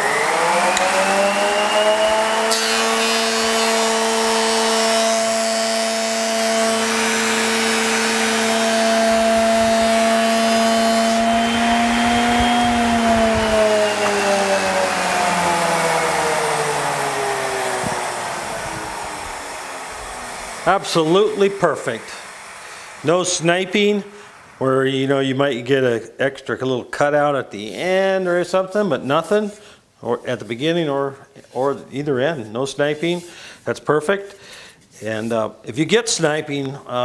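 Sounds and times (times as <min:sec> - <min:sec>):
planer motor whine: 0:00.0 - 0:24.9
hiss of wood cutting: 0:00.0 - 0:25.4.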